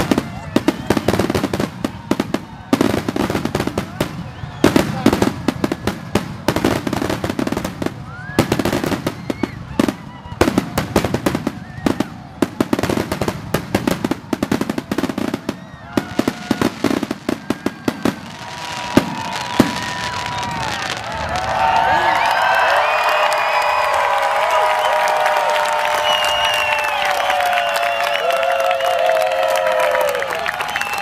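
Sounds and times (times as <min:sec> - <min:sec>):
murmur of voices: 0:00.0 - 0:22.1
fireworks and firecrackers banging: 0:00.0 - 0:23.8.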